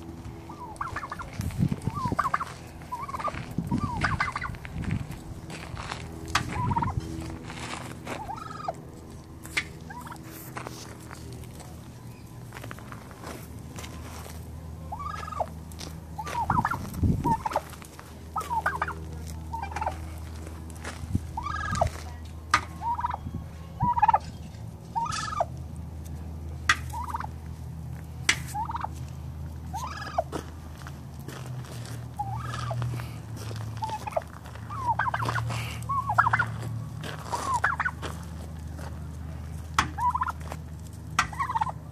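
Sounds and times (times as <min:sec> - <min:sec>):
turkey gobbling: 0:00.4 - 0:04.7, 0:06.3 - 0:07.4, 0:08.1 - 0:10.5, 0:14.9 - 0:20.3, 0:21.4 - 0:25.6, 0:26.6 - 0:27.4, 0:28.2 - 0:30.4, 0:32.1 - 0:33.1, 0:33.8 - 0:41.9.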